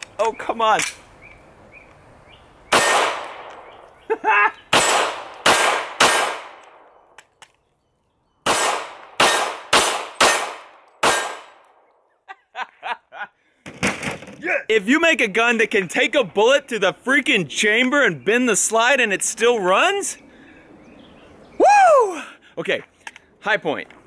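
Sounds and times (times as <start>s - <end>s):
pistol shots: 2.7s - 3.8s, 4.7s - 7.0s, 8.4s - 11.8s.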